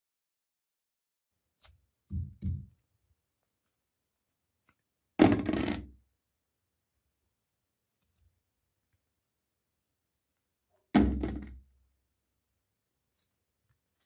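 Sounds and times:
ball knocking in toilet bowl: 11.0s - 11.6s.

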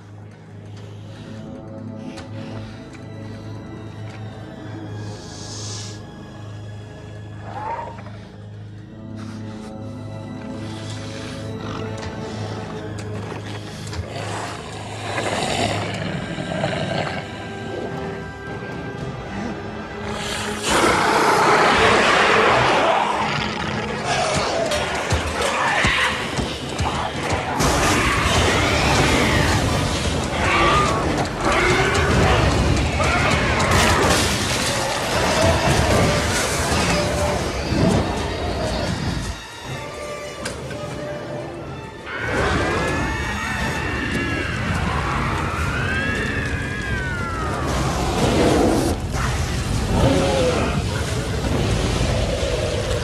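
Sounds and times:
fire and flames burning: 10.5s - 41.2s, 42.2s - 53.0s
creature shrieking: 20.5s - 26.4s, 27.5s - 37.5s, 42.1s - 51.1s
flamethrower fire rushing: 44.1s - 53.0s.

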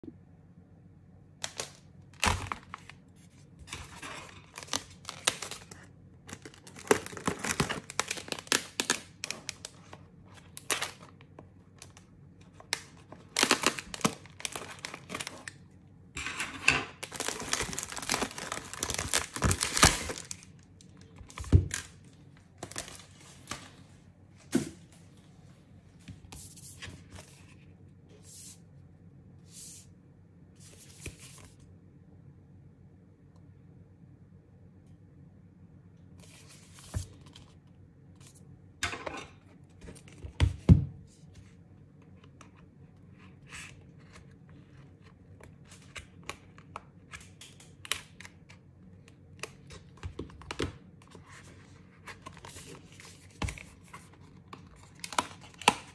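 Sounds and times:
plastic packaging crinkling: 1.4s - 15.6s, 16.9s - 23.8s, 49.4s - 55.9s.

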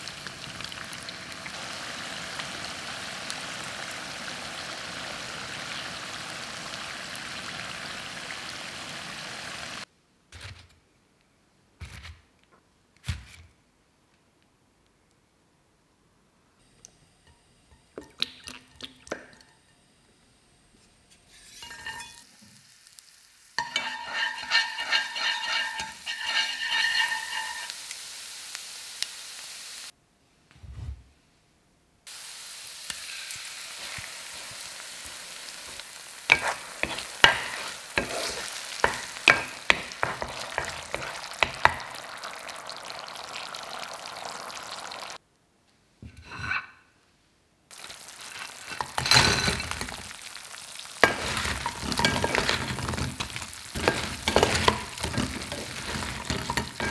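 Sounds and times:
sauce sizzling in frying pan: 0.0s - 9.9s, 21.3s - 30.0s, 32.1s - 45.2s, 47.7s - 56.9s
spatula clicking and scraping pan: 21.1s - 22.2s, 23.6s - 27.8s, 35.7s - 42.1s, 48.2s - 56.9s
spoon scraping glass bowl: 21.1s - 22.2s, 23.6s - 27.7s, 36.3s - 41.8s, 48.4s - 50.1s, 51.0s - 56.9s.

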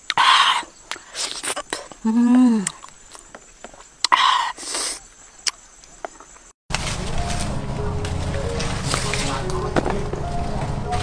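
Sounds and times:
person humming: 2.0s - 2.8s
person chewing wetly: 2.6s - 3.3s.

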